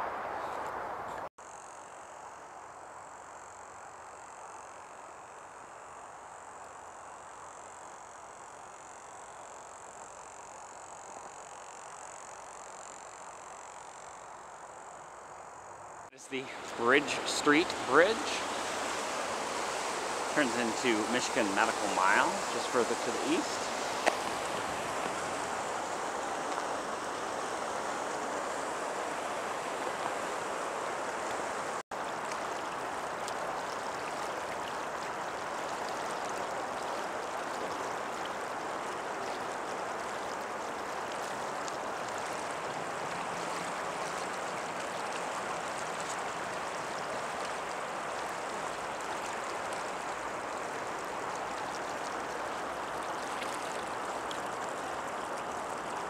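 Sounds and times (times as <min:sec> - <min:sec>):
river current rushing: 0:14.4 - 0:56.0.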